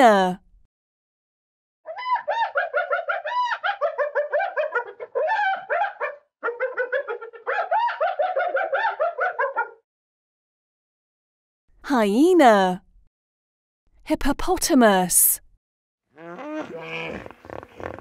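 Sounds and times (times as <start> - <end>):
hyena giggling: 2.4 - 5.7, 6.4 - 9.7.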